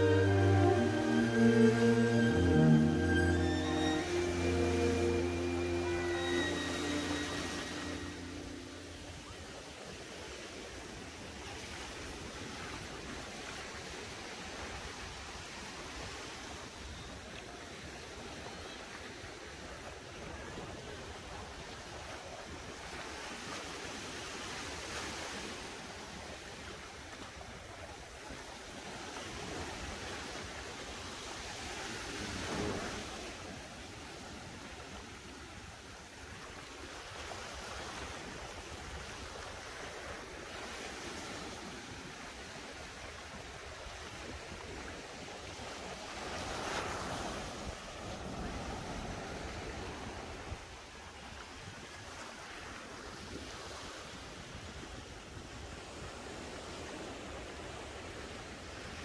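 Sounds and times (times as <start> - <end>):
sea waves breaking: 0.0 - 16.7, 19.5 - 50.6.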